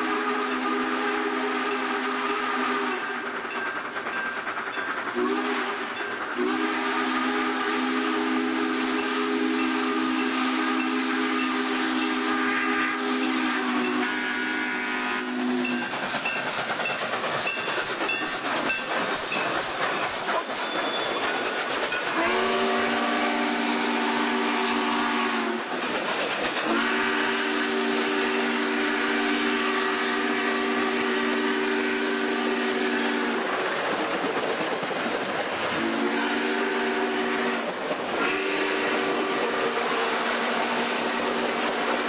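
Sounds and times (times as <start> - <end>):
steam whistle blasts: 0.0 - 3.2, 5.2 - 15.9, 22.0 - 25.7, 26.6 - 33.4, 35.7 - 42.0
steam locomotive hissing and chuffing: 0.0 - 42.0.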